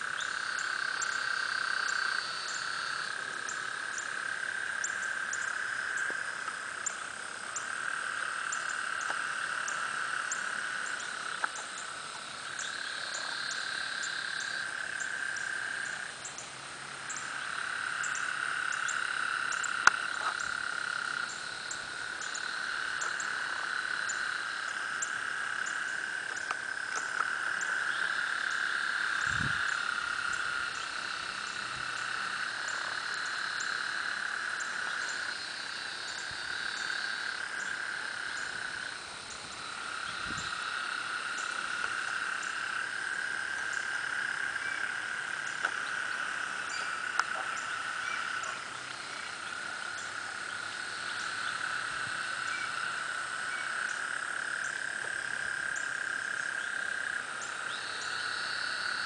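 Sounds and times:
frogs calling: 0:00.0 - 0:59.0.

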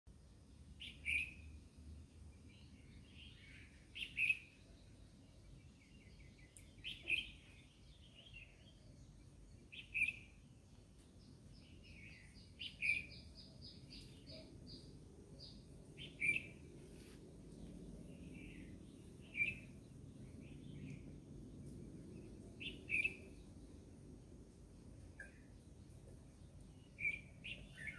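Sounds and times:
faint bird chirps and trill: 0:00.2 - 0:17.0, 0:17.6 - 0:23.8, 0:25.0 - 0:27.9
bird singing a clear call: 0:00.8 - 0:01.7, 0:02.4 - 0:16.8, 0:17.8 - 0:23.6, 0:25.1 - 0:27.9.

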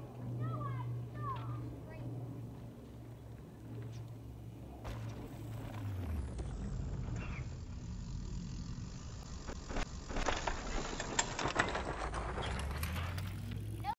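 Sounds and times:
low rumble: 0:00.0 - 0:13.9
bike clicks and rattles: 0:05.3 - 0:13.9.

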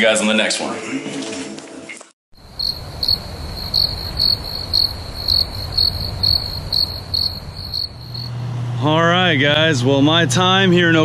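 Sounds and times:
crickets chirping: 0:02.4 - 0:08.4.

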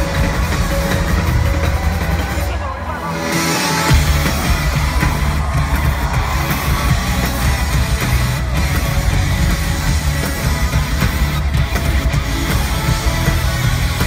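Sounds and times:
band playing rock music: 0:00.0 - 0:14.0.

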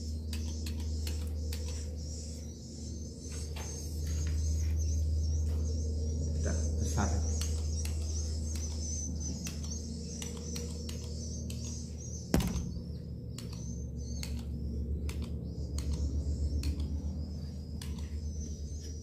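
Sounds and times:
birds twittering: 0:00.0 - 0:19.0
steady low hum: 0:00.0 - 0:19.0
sharp clicks: 0:07.4 - 0:11.8, 0:13.3 - 0:17.0
sharp knock: 0:12.4 - 0:12.7.

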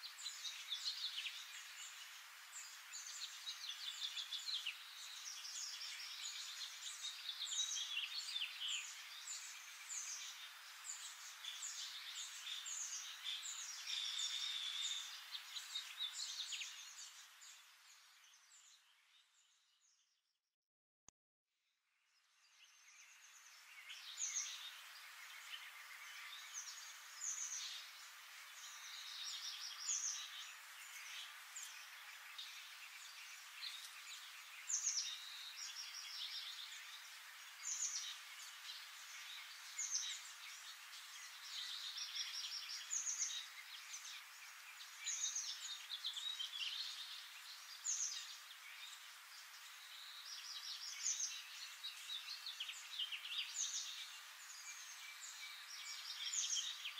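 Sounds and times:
background hiss: 0:00.0 - 0:19.5, 0:22.4 - 0:56.9.

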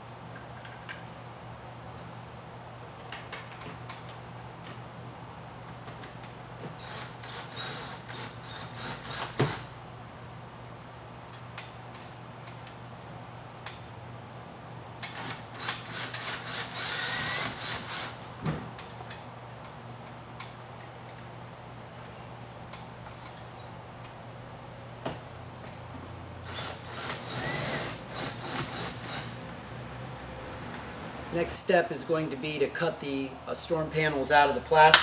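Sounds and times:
cordless drill motor: 0:06.8 - 0:09.7, 0:15.6 - 0:18.2, 0:26.5 - 0:29.3.

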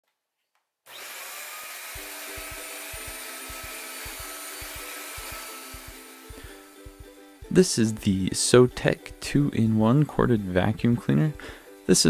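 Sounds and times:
vacuum cleaner running: 0:00.9 - 0:07.0.

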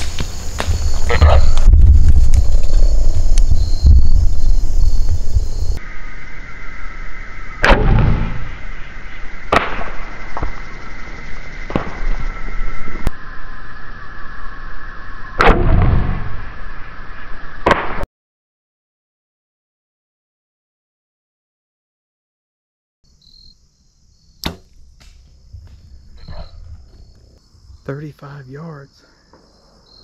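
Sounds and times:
crickets chirping: 0:00.0 - 0:15.4, 0:16.0 - 0:17.6, 0:23.0 - 0:30.0
heavy thumps: 0:24.4 - 0:27.4.

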